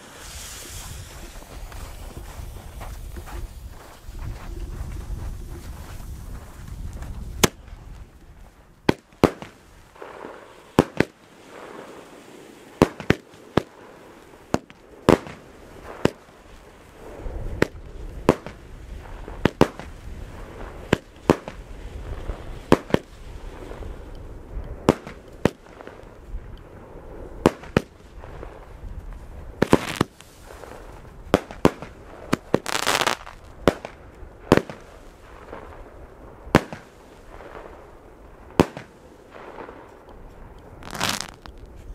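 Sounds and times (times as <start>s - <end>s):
noisy firework bursts: 0.0s - 3.9s, 8.9s - 40.0s, 40.7s - 41.9s
fireworks bangs: 8.8s - 41.9s.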